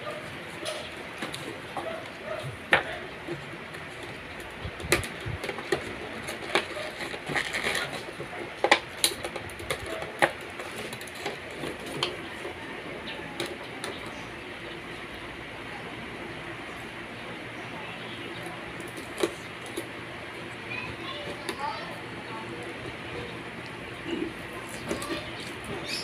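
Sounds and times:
packaging clicks and rustles: 0:03.7 - 0:12.5.

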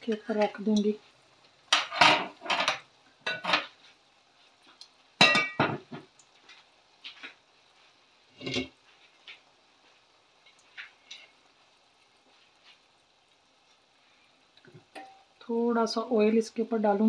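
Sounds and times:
metal utensils and cookware clattering: 0:01.7 - 0:03.8, 0:05.2 - 0:06.1, 0:08.3 - 0:08.8, 0:14.8 - 0:15.2.

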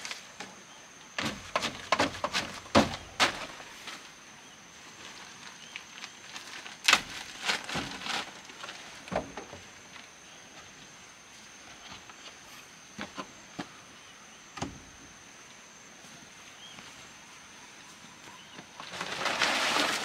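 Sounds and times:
knocks and clatters of building work: 0:01.2 - 0:04.0, 0:06.9 - 0:10.0, 0:11.7 - 0:13.8.

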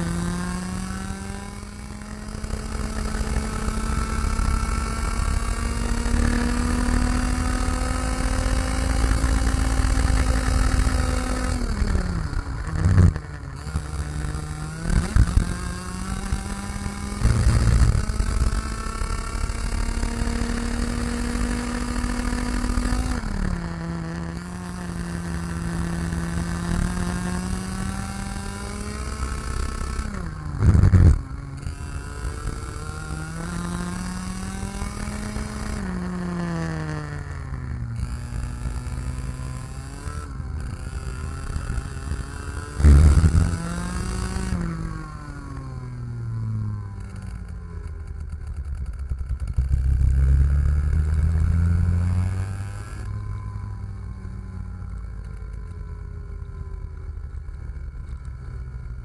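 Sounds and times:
kart engine at racing speed: 0:00.0 - 0:59.0.

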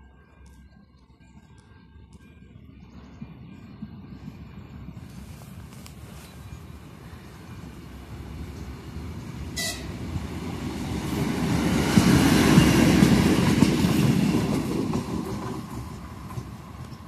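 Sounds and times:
diesel train passing: 0:00.0 - 0:17.0
short train horn toot: 0:09.6 - 0:10.0.

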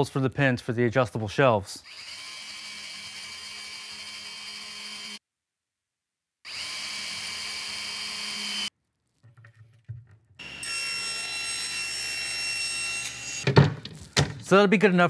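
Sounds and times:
cordless drill whirring: 0:01.8 - 0:05.2, 0:06.5 - 0:08.7
table saw running: 0:01.8 - 0:05.2, 0:06.5 - 0:08.7, 0:10.4 - 0:13.4.

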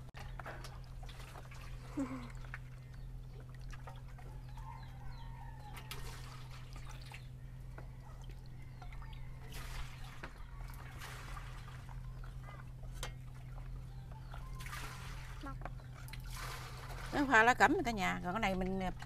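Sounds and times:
steady low hum: 0:00.0 - 0:19.0
batter trickling and dripping: 0:00.1 - 0:19.0
faint bird chirps: 0:04.2 - 0:11.0, 0:13.4 - 0:16.0.

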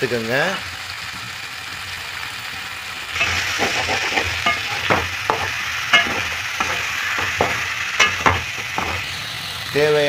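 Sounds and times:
vegetables sizzling in oil: 0:00.0 - 0:10.0
ladle scraping and clinking pan: 0:03.2 - 0:09.1.

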